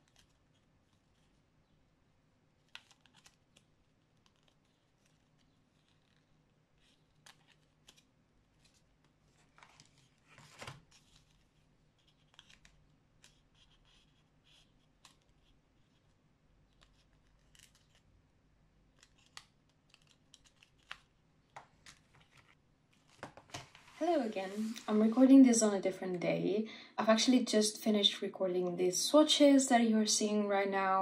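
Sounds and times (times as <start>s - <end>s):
light rustling of art supplies: 2.6s - 18.1s, 18.9s - 26.2s.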